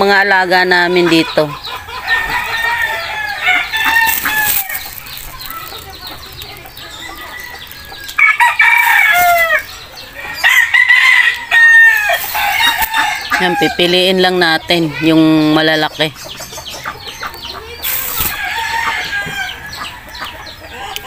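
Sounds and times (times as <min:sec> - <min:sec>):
rooster crowing: 0:02.0 - 0:04.8, 0:07.0 - 0:09.6, 0:10.2 - 0:14.0.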